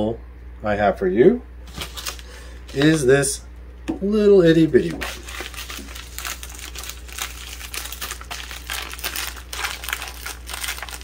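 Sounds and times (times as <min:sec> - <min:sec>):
packet crinkling: 0:01.7 - 0:03.1, 0:04.8 - 0:11.0.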